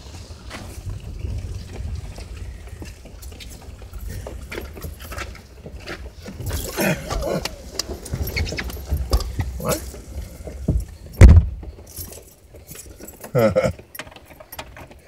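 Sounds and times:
engine and road rumble: 0:00.0 - 0:15.0
rattles and clicks: 0:00.1 - 0:15.0.

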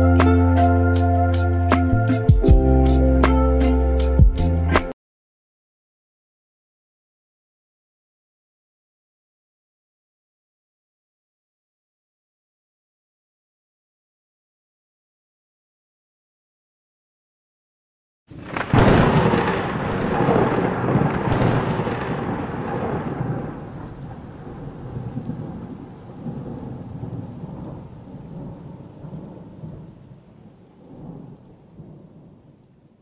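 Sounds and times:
thunder crack and rumble: 0:18.3 - 0:33.0.

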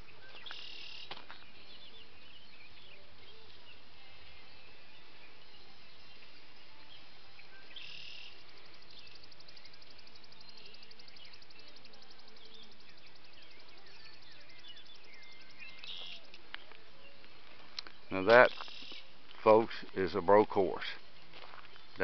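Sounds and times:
birds chirping: 0:00.0 - 0:22.0
steady background noise: 0:00.0 - 0:22.0.

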